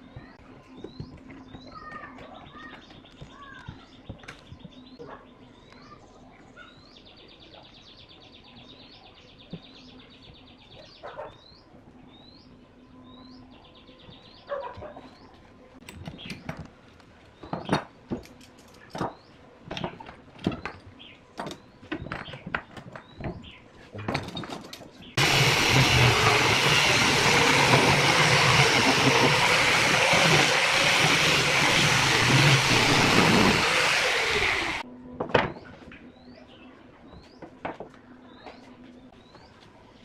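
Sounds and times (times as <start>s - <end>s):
clamps and wood knocking: 21.4s - 35.6s
angle grinder sanding wood: 25.2s - 34.8s.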